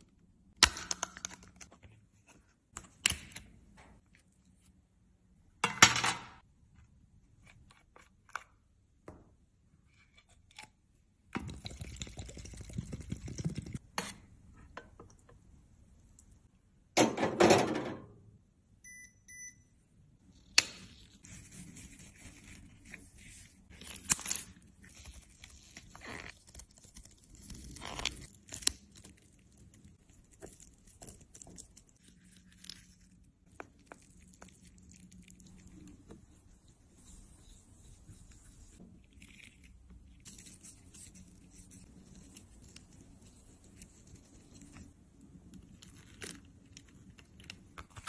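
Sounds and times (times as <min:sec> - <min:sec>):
short beeps: 0:18.8 - 0:19.7.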